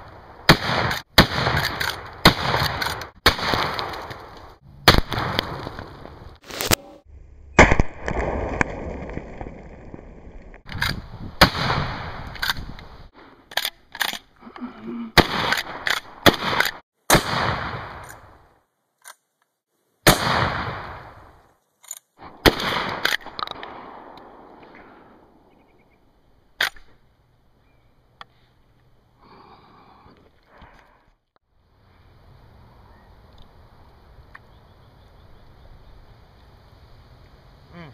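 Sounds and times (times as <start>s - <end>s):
shotgun blasts with echo: 0.4s - 4.2s, 4.8s - 5.9s, 11.4s - 12.3s, 15.2s - 18.2s, 20.0s - 21.2s, 22.2s - 25.2s
sharp cracks and clicks: 0.5s - 6.8s, 10.4s - 14.3s, 15.2s - 16.8s, 21.8s - 24.7s.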